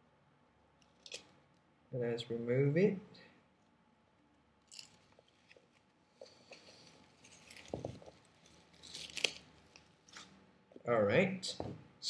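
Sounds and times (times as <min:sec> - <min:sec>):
crinkling: 0:04.6 - 0:10.4
sticker peeling rustle: 0:04.7 - 0:10.3.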